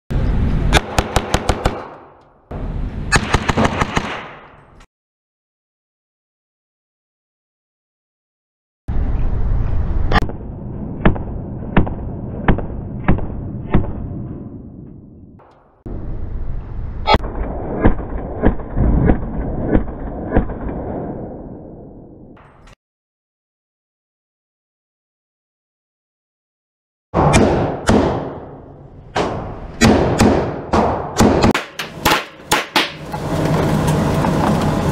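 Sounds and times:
gunshots echoing indoors: 0:00.7 - 0:02.2, 0:03.1 - 0:04.8, 0:27.2 - 0:33.0.

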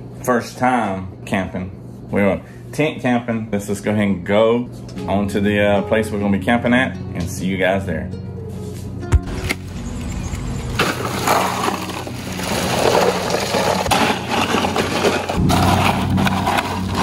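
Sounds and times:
ice cubes rattling into cooler: 0:10.3 - 0:17.0.

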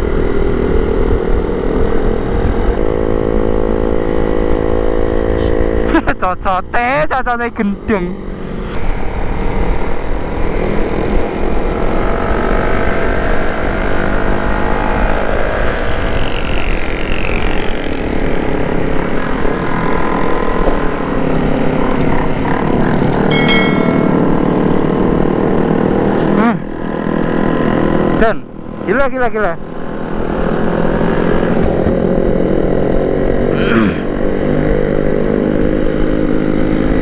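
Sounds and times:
other motorcycles riding: 0:00.0 - 0:37.0
motorcycle engine running: 0:16.5 - 0:25.8.

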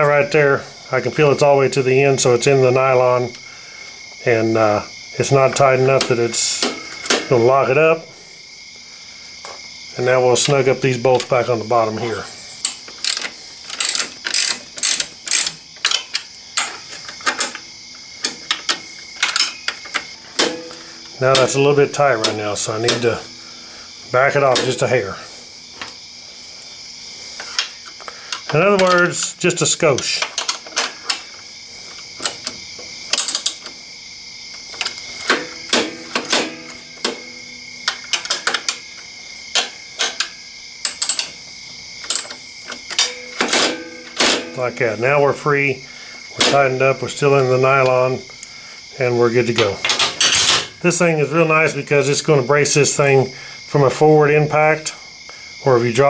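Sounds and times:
faint high hum: 0:00.0 - 0:55.9
socket ratchet clicking: 0:12.6 - 0:20.8.

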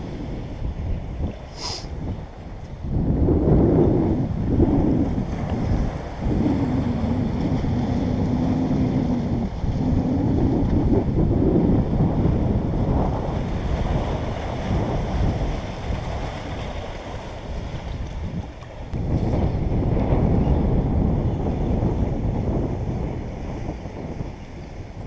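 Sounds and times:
wind buffeting microphone: 0:00.0 - 0:25.0
surf washing against rocks: 0:03.0 - 0:23.9
low wavering drone: 0:03.6 - 0:12.1.

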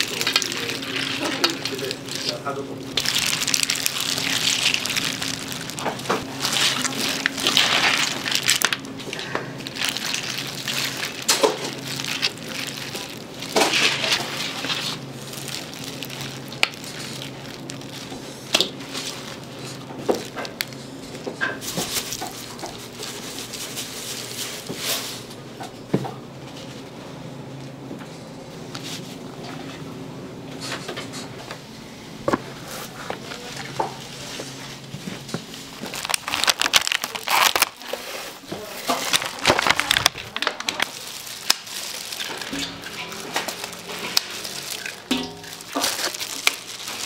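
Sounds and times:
scraping and rustling: 0:00.0 - 0:20.6, 0:32.3 - 0:47.0.

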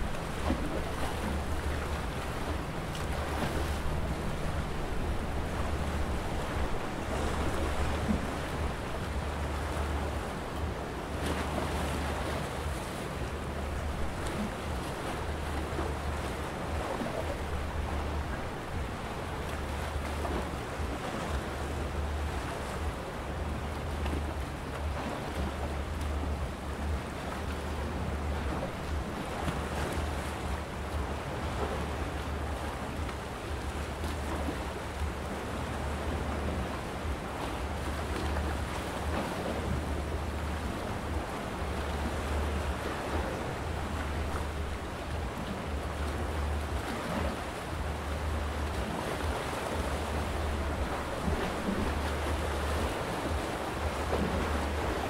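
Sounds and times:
sea waves washing against rocks: 0:00.0 - 0:55.0
wind on microphone: 0:00.0 - 0:55.0.

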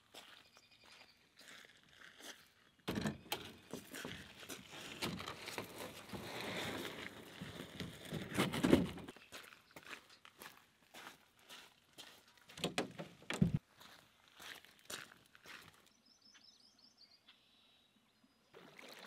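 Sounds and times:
canoe hull scraping on ground: 0:03.0 - 0:09.1.

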